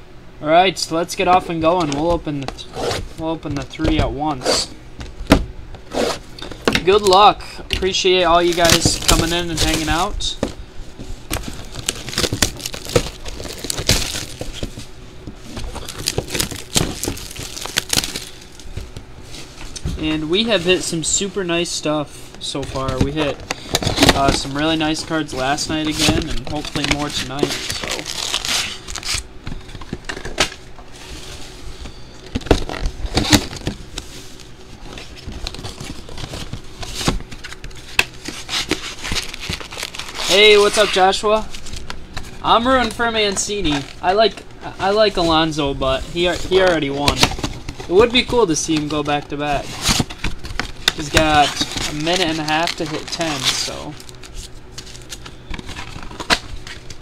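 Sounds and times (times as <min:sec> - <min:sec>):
plastic wrap crinkling and tearing: 0:08.3 - 0:10.1, 0:11.3 - 0:14.7, 0:15.6 - 0:18.7, 0:23.6 - 0:29.2, 0:35.0 - 0:41.9, 0:46.2 - 0:57.0.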